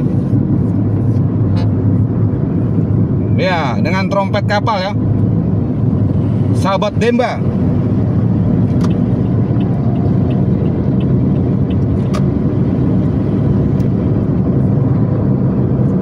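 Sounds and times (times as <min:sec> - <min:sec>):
car road and engine rumble: 0:00.0 - 0:16.0
bus passing: 0:07.4 - 0:16.0.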